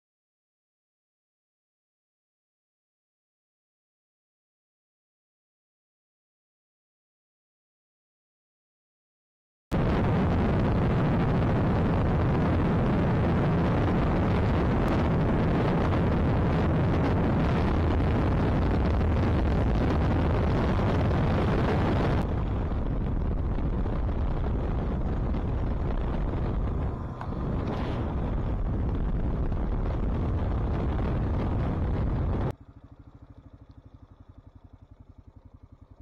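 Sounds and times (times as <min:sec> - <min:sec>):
wind buffeting microphone: 0:09.8 - 0:32.6
low motorcycle rumble: 0:09.8 - 0:36.0.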